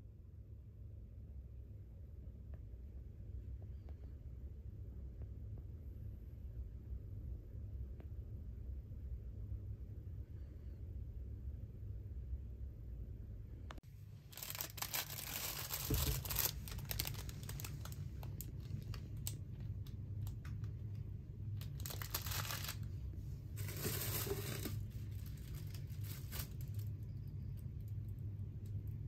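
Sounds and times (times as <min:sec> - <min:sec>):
steady low hum: 0:00.0 - 0:29.0
plastic packaging crinkling: 0:14.2 - 0:27.0.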